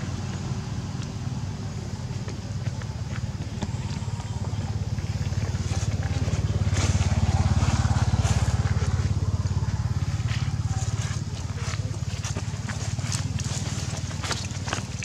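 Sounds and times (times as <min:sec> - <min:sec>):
engine running low rumble: 0:00.0 - 0:15.0.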